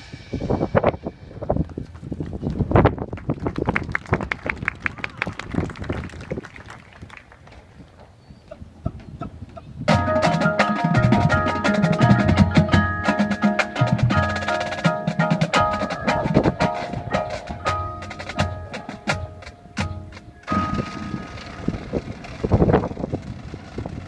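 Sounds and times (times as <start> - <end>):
marimbas and mallet keyboards: 9.9 - 21.3
snare tenor and bass drums: 9.9 - 23.2.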